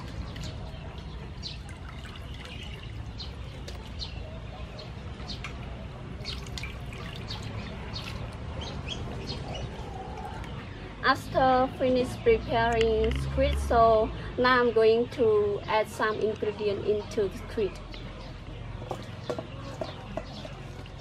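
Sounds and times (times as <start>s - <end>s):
water dripping: 0.0s - 4.0s, 5.5s - 8.4s
water splashing and sloshing in a bowl: 0.0s - 10.6s, 18.8s - 21.0s.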